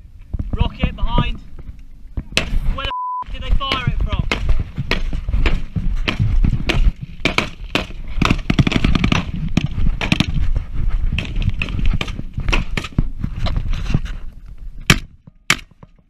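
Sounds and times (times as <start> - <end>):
rifle shots cracking: 3.8 - 10.3.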